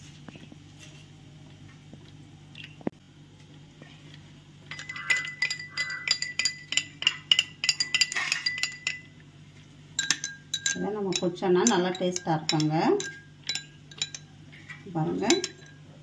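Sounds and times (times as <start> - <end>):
low steady hum: 0.0 - 16.0
spoon clinking in glass: 4.7 - 9.1, 10.0 - 14.3, 15.2 - 15.9.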